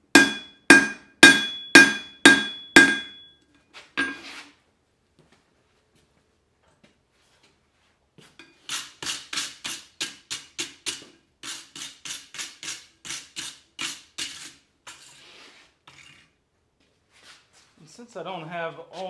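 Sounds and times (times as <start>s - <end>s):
hammer striking hot steel: 0.0s - 3.3s, 4.0s - 4.2s.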